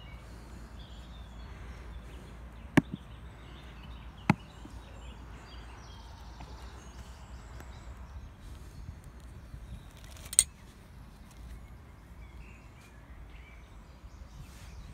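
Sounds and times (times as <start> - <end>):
case latches snapping open: 10.0 - 10.5.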